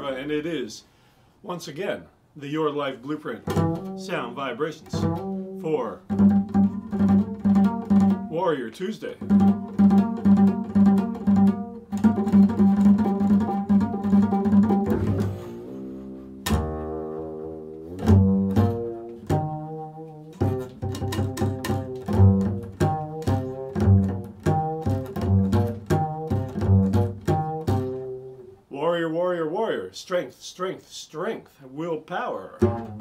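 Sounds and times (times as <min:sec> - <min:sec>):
double bass plucked notes: 0:03.3 - 0:28.7, 0:32.4 - 0:33.0.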